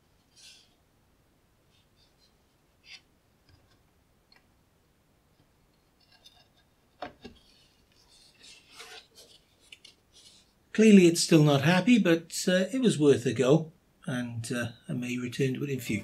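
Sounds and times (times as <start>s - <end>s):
plastic housing clicks and rubs: 5.7s - 10.5s.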